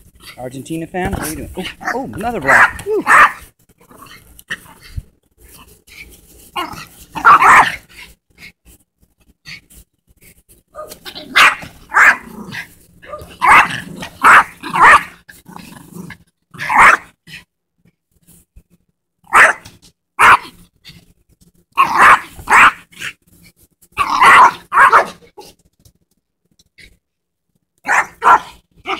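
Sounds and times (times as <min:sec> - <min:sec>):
small dog barking: 0:01.7 - 0:03.5, 0:06.6 - 0:07.9, 0:10.8 - 0:12.3, 0:13.0 - 0:15.2, 0:16.6 - 0:17.1, 0:19.3 - 0:20.6, 0:21.8 - 0:23.2, 0:24.0 - 0:25.3, 0:27.8 - 0:28.9.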